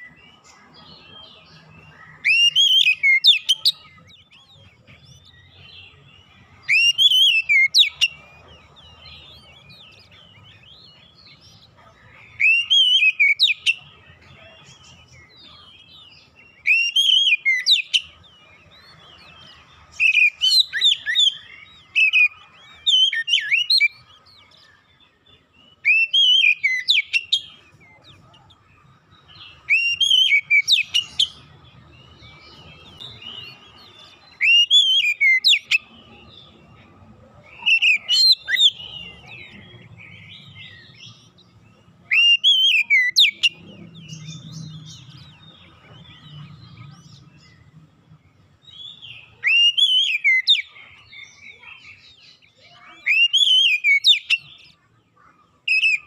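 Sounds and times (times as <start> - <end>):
bird singing whistled phrases: 1.7 - 4.3, 16.6 - 18.1, 20.0 - 24.0, 25.8 - 27.6, 29.7 - 31.4, 32.8 - 35.9, 42.0 - 45.3, 48.7 - 54.7, 55.7 - 56.0.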